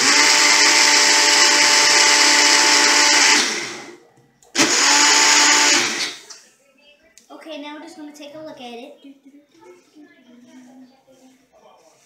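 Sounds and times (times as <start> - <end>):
blender motor running: 0.0 - 4.0, 4.6 - 6.2.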